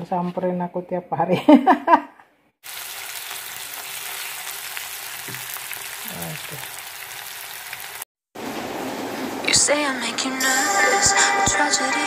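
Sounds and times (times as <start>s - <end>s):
paste sizzling in hot oil: 2.6s - 8.1s
music: 9.4s - 12.0s.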